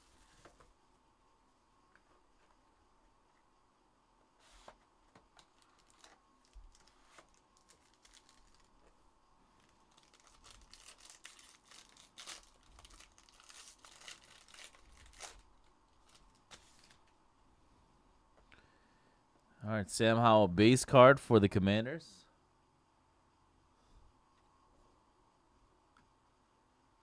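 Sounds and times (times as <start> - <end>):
foil pack crinkling and tearing: 5.4 - 8.9, 9.6 - 17.1.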